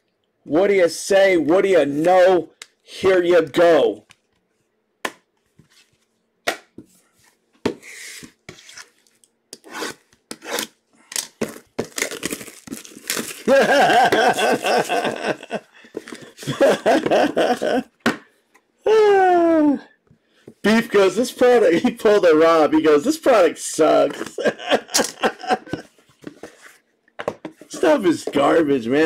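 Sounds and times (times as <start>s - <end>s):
person speaking: 0.5s - 4.1s, 18.8s - 20.0s, 20.6s - 25.9s, 27.6s - 29.0s.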